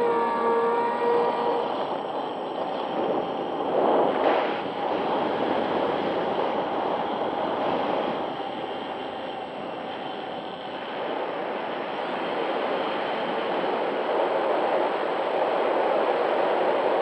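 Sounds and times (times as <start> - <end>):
wind and propeller rush: 0.0 - 17.0.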